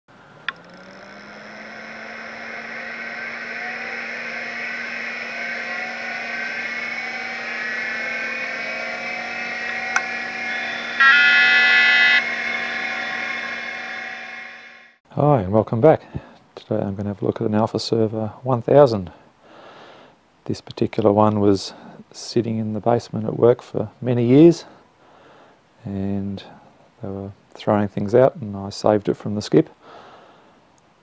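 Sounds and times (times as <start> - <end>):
computer fans and drives whining: 0.1 - 15.0
steady hum: 0.1 - 15.0
loud computer beep: 1.3 - 15.0.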